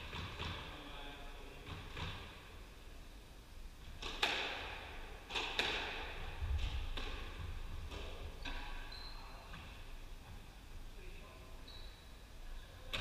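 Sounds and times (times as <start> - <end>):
squash ball cracking off rackets: 4.0 - 8.8.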